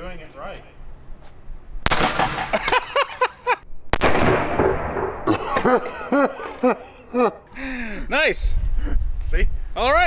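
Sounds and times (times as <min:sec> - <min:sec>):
airbag firing with sharp bang: 0:01.8 - 0:02.6, 0:03.9 - 0:05.3
excited laughter: 0:02.5 - 0:03.6, 0:05.3 - 0:07.5.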